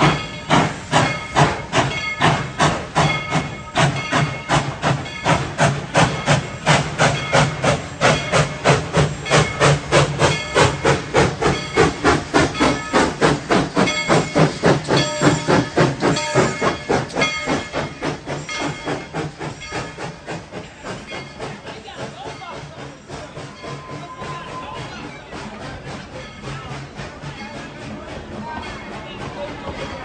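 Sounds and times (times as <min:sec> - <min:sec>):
hiss of steam: 0:00.0 - 0:30.0
steam locomotive exhaust chuffing: 0:00.0 - 0:30.0.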